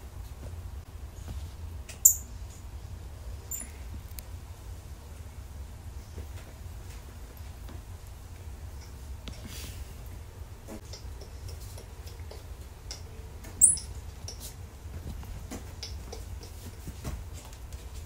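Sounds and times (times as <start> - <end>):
faint clicks and rustles: 6.1 - 18.0
high-pitched animal squeak: 13.6 - 13.9.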